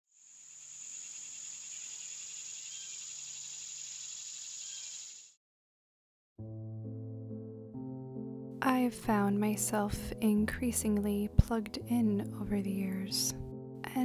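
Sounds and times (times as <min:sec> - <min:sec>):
insect chorus trilling: 0:00.1 - 0:05.4
soft music: 0:06.4 - 0:14.0.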